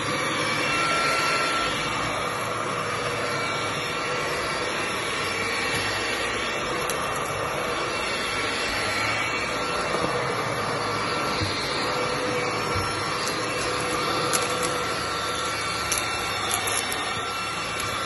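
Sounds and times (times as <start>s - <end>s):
stick vacuum whining: 0.0s - 18.0s
vacuum head pushed over carpet: 2.7s - 18.0s.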